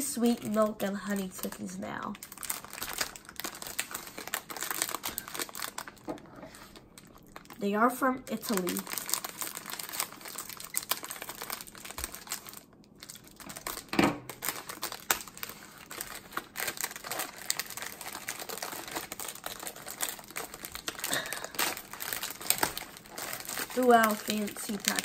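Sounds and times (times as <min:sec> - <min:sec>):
packaging crinkling and tearing: 0:00.1 - 0:07.6, 0:08.3 - 0:25.0
loud packaging crunch: 0:00.4 - 0:07.6, 0:08.3 - 0:25.0.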